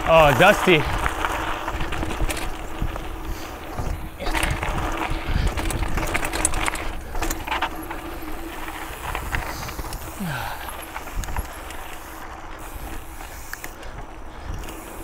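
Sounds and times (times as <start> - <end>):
bike chain rattling and clicking: 0.0 - 15.0
bike tyres crunching on dirt: 0.0 - 15.0.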